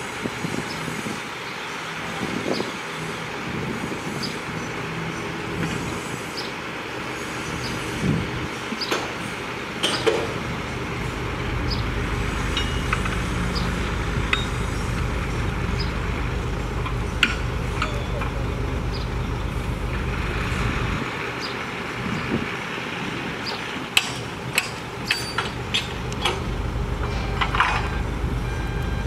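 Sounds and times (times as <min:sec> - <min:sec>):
diesel engines running: 0:00.0 - 0:29.0
deep engine rumble: 0:02.0 - 0:29.0
sharp metal clinks and knocks: 0:24.6 - 0:26.4.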